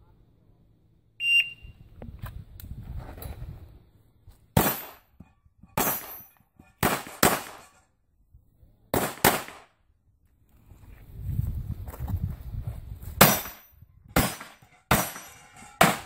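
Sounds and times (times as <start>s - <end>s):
pistol shots with echo: 4.6s - 5.0s, 6.8s - 7.7s, 8.9s - 9.8s, 14.2s - 16.0s.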